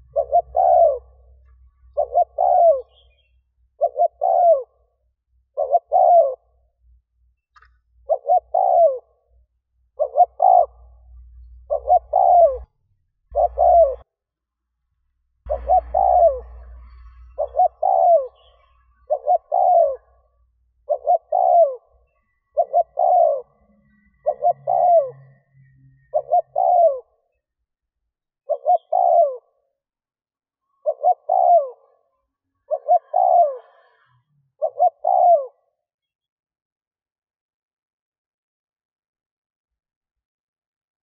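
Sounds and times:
dove cooing: 0.0s - 6.8s, 8.0s - 12.7s, 13.3s - 14.1s, 15.5s - 25.4s, 26.0s - 27.2s, 28.4s - 29.6s, 30.7s - 35.8s.

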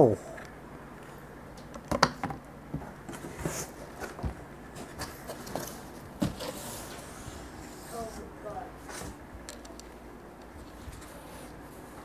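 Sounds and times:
packing rustling and scraping: 3.0s - 9.2s.

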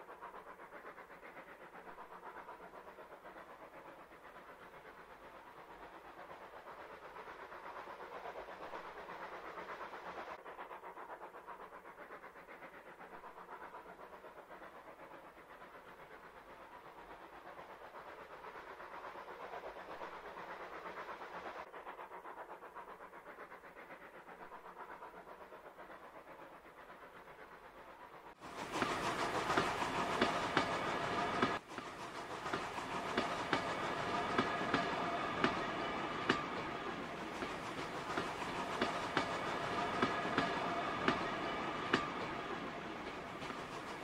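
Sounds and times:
wheels clicking on track: 28.3s - 44.0s.

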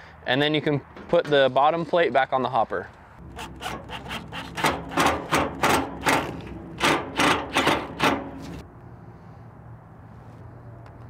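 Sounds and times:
cordless drill driving screws into metal: 3.4s - 8.6s.

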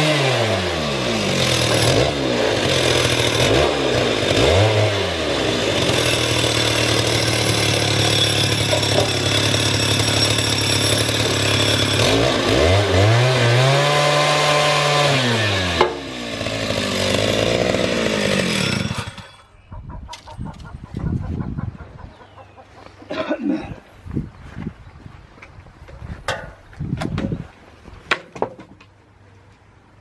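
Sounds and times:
chainsaw cutting a log: 0.0s - 19.5s.

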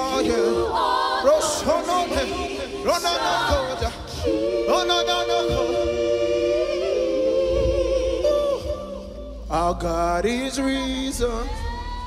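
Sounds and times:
voices singing worship song: 0.0s - 12.0s
low bass: 4.0s - 12.0s.

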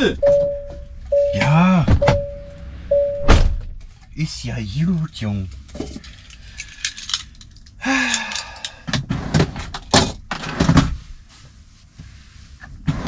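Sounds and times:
objects thunking and knocking: 8.8s - 11.0s.

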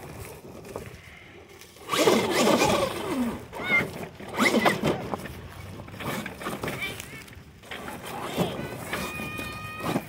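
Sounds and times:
tyres grinding: 1.8s - 10.0s.

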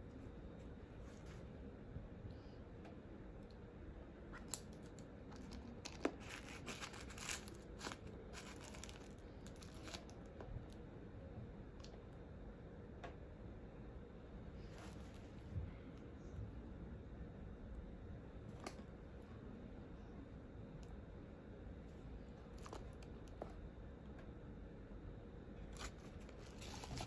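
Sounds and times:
tissue paper rustling: 6.1s - 10.0s, 25.7s - 27.0s.

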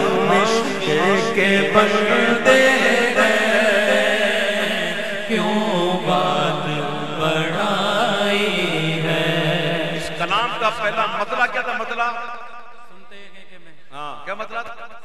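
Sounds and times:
man singing melismatic phrase: 0.0s - 9.3s.

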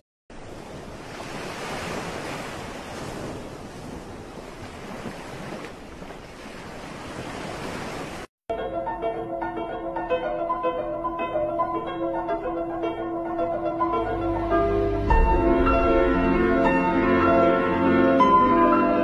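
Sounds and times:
sea and wind noise: 0.3s - 8.3s
plucked-string music: 8.5s - 19.0s.

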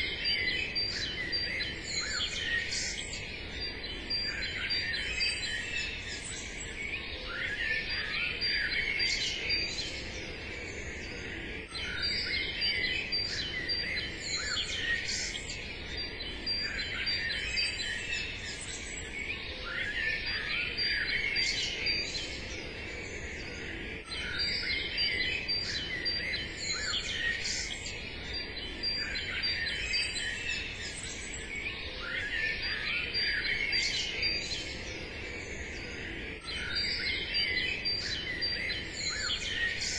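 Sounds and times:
small birds chirping and singing: 0.0s - 39.9s.

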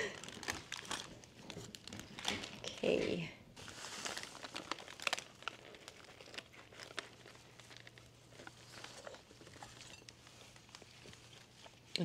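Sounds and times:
paper wrapper crinkling: 0.0s - 12.0s
soft crackles: 0.0s - 12.0s
faint chewing: 5.4s - 12.0s.

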